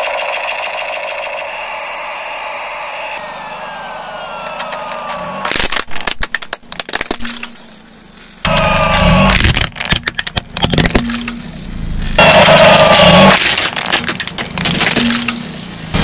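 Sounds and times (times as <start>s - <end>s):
slowly falling whine: 0.0s - 6.2s
plastic toy cracking and snapping: 5.0s - 7.5s, 9.3s - 11.0s, 13.4s - 15.4s.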